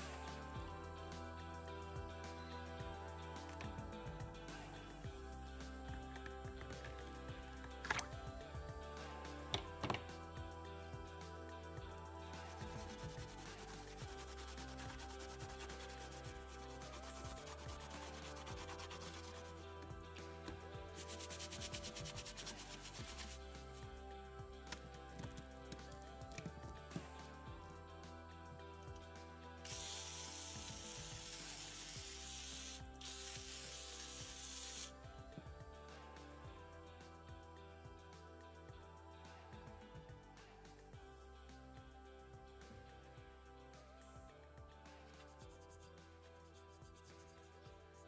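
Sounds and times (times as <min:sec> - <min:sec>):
aerosol can spraying: 0:12.4 - 0:19.7, 0:21.0 - 0:23.5, 0:29.7 - 0:34.9
bicycle chain being scrubbed: 0:12.5 - 0:19.6, 0:21.0 - 0:23.4, 0:29.7 - 0:34.9.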